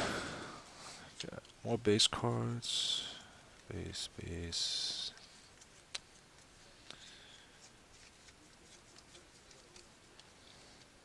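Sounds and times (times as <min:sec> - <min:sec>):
trading cards flipping ticks: 0:05.1 - 0:07.4, 0:08.0 - 0:10.9.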